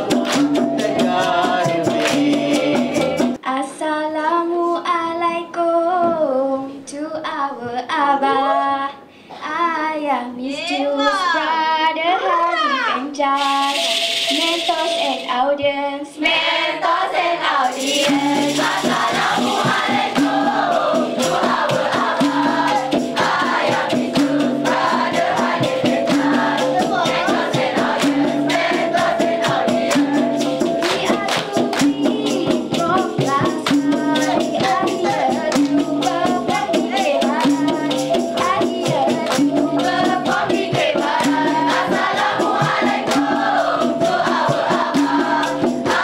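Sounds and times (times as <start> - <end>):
chorus of voices: 0.0 - 3.4, 16.1 - 46.0
hand percussion beat: 0.0 - 3.4, 13.2 - 15.6, 16.2 - 46.0.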